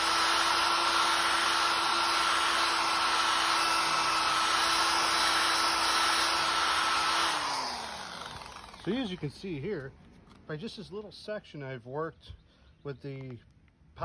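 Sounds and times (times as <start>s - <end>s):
electric drill whining: 0.0s - 9.2s.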